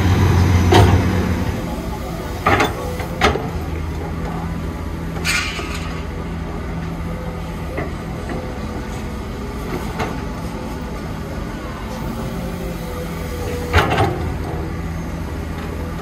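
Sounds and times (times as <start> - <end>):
diesel excavator working: 0.0 - 16.0
sharp metal clanks: 5.2 - 6.1.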